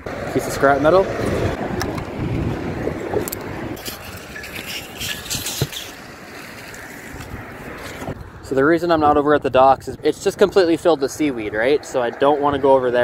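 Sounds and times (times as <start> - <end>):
rope handling noise: 3.1 - 8.2.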